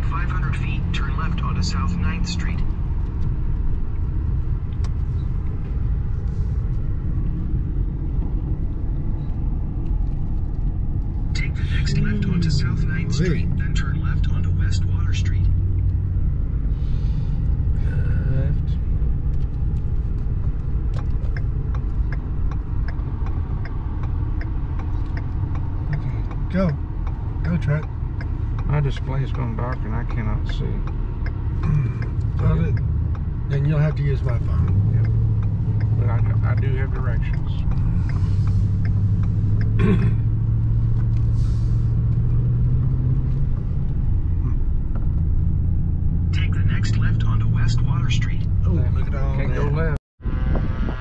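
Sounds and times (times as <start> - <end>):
engine hum: 0.0 - 51.0
road noise: 0.0 - 51.0
vehicle driving rumble: 0.0 - 51.0.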